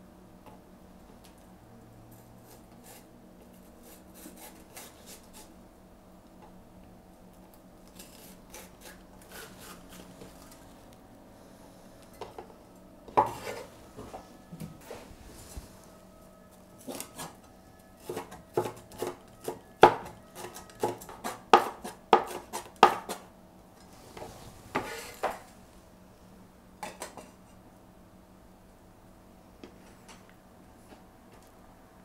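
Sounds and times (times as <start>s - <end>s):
knife chopping on wooden board: 18.0s - 23.2s.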